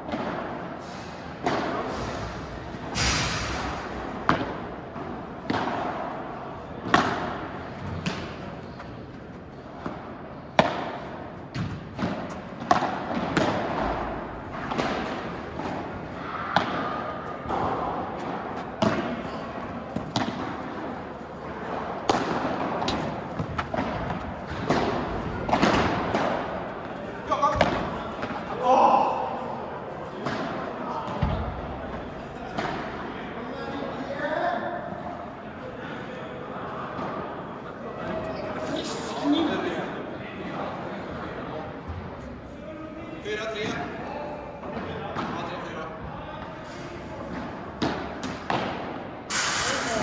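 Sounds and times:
ball bouncing on court: 0:10.6 - 0:15.7, 0:22.1 - 0:26.5
ball struck by rackets: 0:10.6 - 0:15.9, 0:20.0 - 0:20.8, 0:22.0 - 0:26.6.

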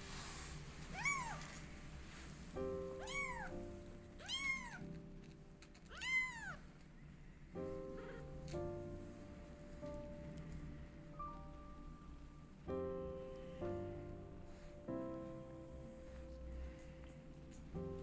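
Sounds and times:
background music: 0:00.1 - 0:06.5, 0:07.1 - 0:18.0
kitten mewing: 0:00.9 - 0:01.4, 0:03.0 - 0:03.5, 0:04.2 - 0:04.8, 0:05.8 - 0:06.6, 0:08.0 - 0:08.2.

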